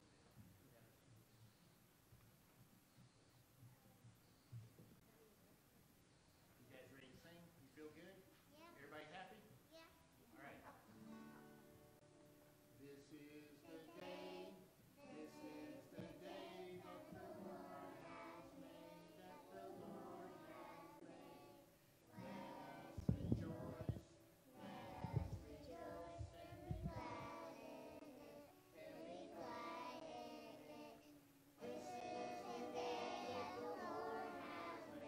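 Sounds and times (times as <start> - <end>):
acoustic guitar: 10.6 - 35.0
children singing: 13.7 - 35.0
low thuds: 22.9 - 27.4.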